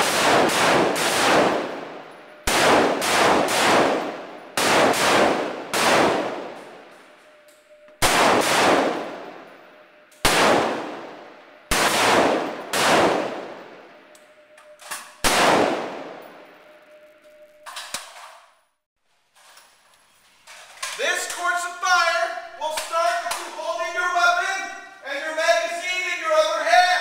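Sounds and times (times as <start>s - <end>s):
rifle shots echoing: 0.0s - 17.0s.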